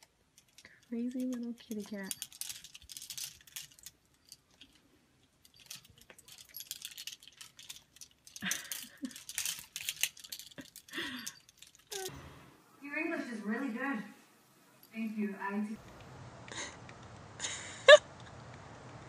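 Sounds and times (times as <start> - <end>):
plastic hangers clattering: 0.0 - 12.1.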